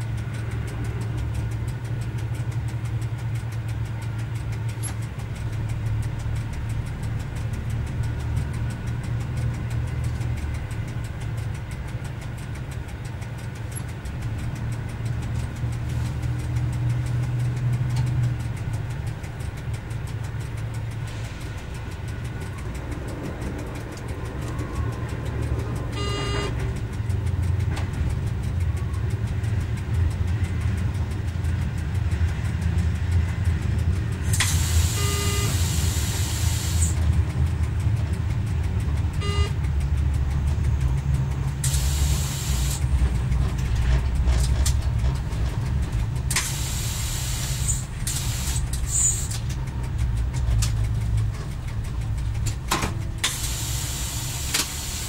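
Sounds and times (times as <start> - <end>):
diesel railcar engine running: 0.0 - 55.0
brief pitched tones: 26.0 - 26.5.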